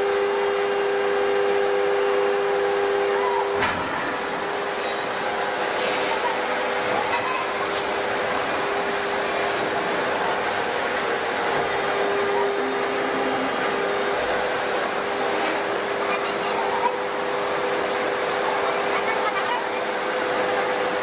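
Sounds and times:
press hum-like whine: 0.0 - 21.0
forging press hissing: 2.8 - 16.0.

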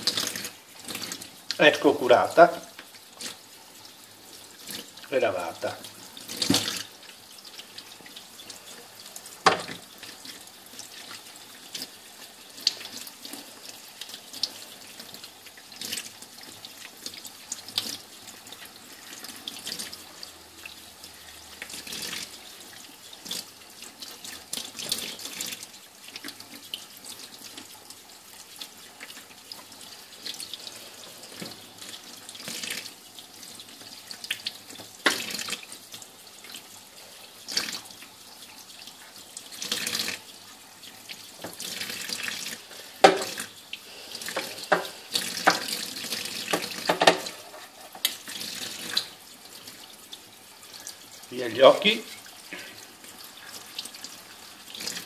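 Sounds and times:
knocks against sink: 9.4 - 9.8, 43.0 - 43.4, 46.5 - 47.4
tap running into metal sink: 9.4 - 9.9, 43.0 - 43.5, 44.3 - 45.8, 46.4 - 48.2.

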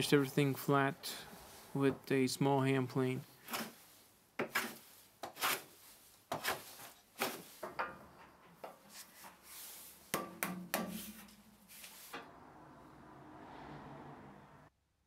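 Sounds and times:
hand plane shaving wood: 3.4 - 7.6.

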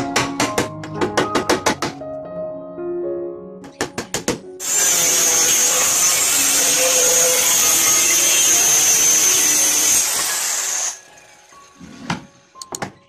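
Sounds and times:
circular saw cutting wood: 4.6 - 11.9.

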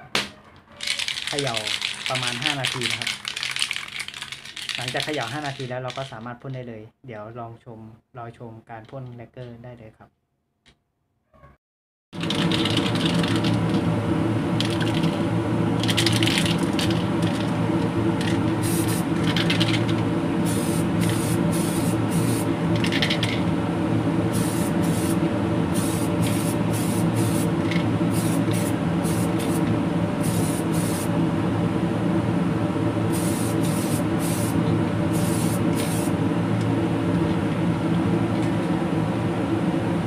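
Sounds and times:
steady low hum: 12.2 - 40.0
aerosol can spraying: 18.2 - 19.8, 20.4 - 23.2, 24.3 - 31.1, 33.1 - 36.2.

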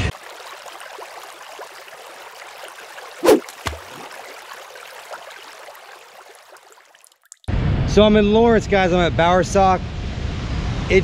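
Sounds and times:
rushing water hiss: 3.0 - 4.4.

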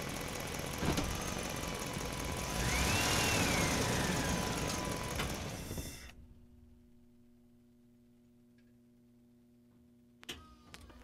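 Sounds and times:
electric motors whining: 1.0 - 6.2.

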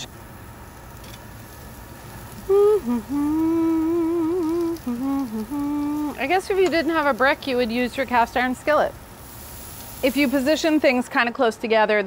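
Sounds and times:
faint hiss of vegetables grilling: 0.0 - 12.0
woman humming: 2.3 - 7.0.

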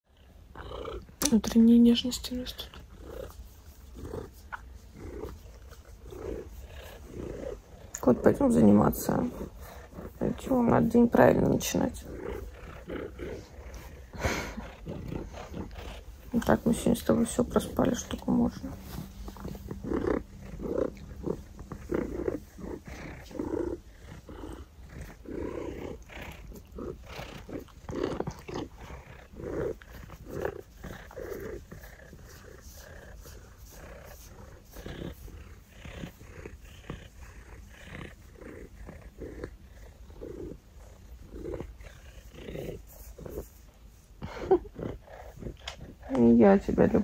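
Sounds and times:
wild cat calling: 18.7 - 40.6.

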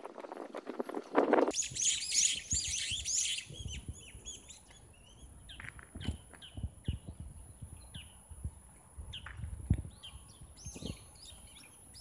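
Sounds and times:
small birds chirping: 0.9 - 12.0
footsteps on paved path: 4.5 - 7.8, 8.4 - 10.0.

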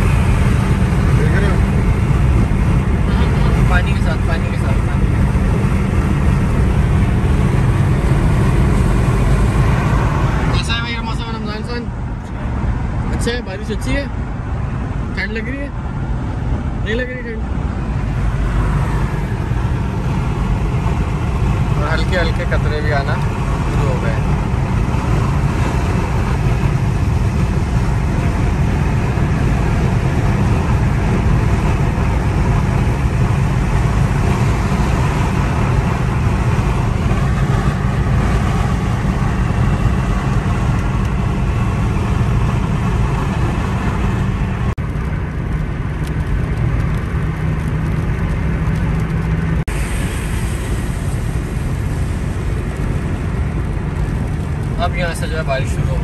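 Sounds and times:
car engine drone inside cabin: 0.0 - 56.0
tyres hissing on wet road: 46.8 - 56.0.

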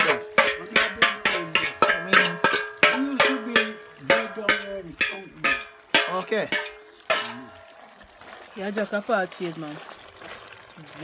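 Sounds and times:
metal spoon clanking in pot: 0.0 - 7.8.

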